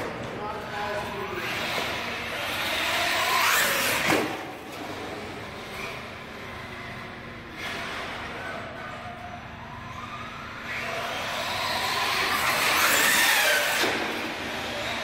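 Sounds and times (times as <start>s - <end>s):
rc truck electric motor whine: 5.5s - 15.0s.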